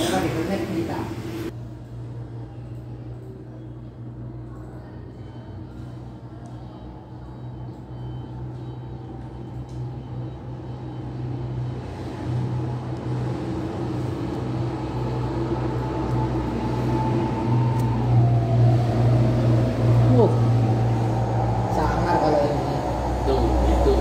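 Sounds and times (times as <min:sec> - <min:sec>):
vehicle engine humming: 0:05.7 - 0:24.0.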